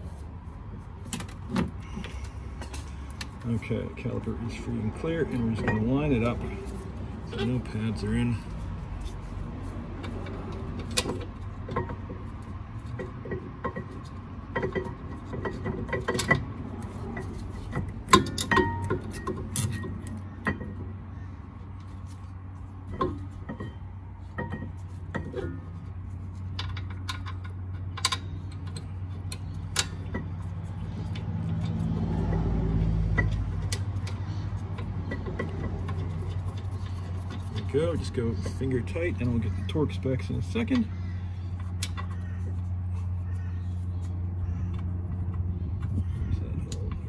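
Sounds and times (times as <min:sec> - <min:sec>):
metal clinking and tapping: 0:17.1 - 0:20.8, 0:24.4 - 0:25.6.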